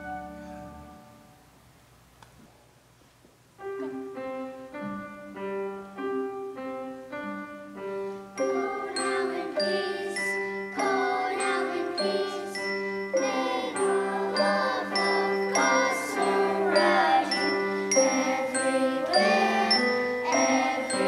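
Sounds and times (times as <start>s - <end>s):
bell-like melody: 8.4s - 21.0s
bright jingling ringing: 8.4s - 21.0s.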